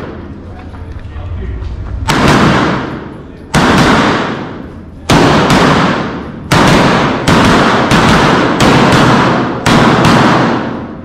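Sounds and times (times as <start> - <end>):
echoing gunshots: 0.0 - 0.4, 2.0 - 11.0.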